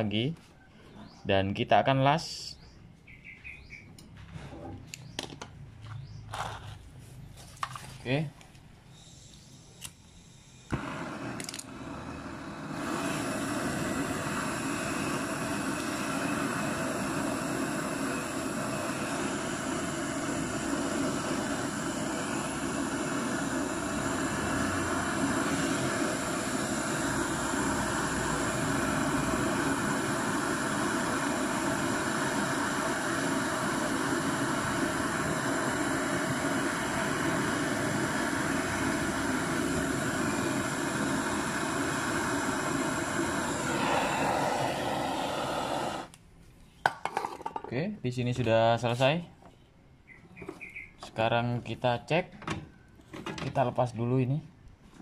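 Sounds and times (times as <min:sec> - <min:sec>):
gas torch hissing: 0:07.6 - 0:46.2.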